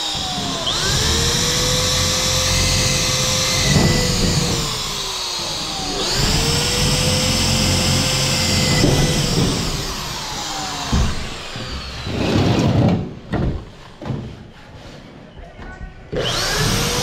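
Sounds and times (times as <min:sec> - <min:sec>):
drill click: 0:00.0 - 0:12.2, 0:16.2 - 0:17.0
cordless drill whining: 0:00.0 - 0:12.7, 0:16.2 - 0:17.0
knocks and rustles: 0:02.7 - 0:07.3, 0:08.2 - 0:16.3.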